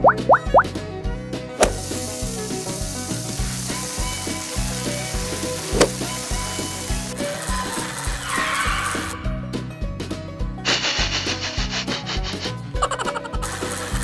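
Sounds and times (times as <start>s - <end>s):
background music with steady beat: 0.0s - 8.4s
steak sizzling on grill: 1.6s - 9.2s.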